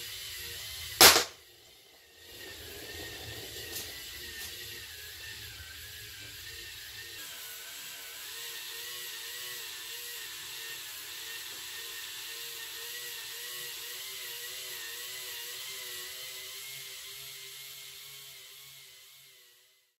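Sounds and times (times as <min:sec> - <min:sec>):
toy motor whining and whirring: 0:00.0 - 0:20.0.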